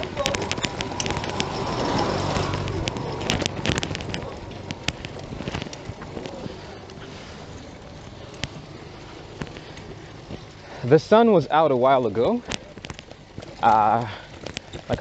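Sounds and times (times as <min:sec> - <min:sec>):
auto-rickshaw engine passing: 0:00.0 - 0:15.0
bicycle rolling on dirt road: 0:00.0 - 0:15.0.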